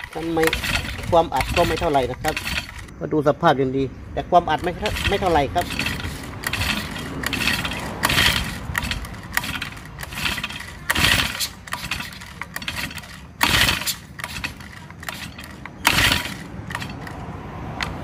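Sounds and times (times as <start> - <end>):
recoil starter pulls: 0.0 - 3.0, 4.4 - 18.0.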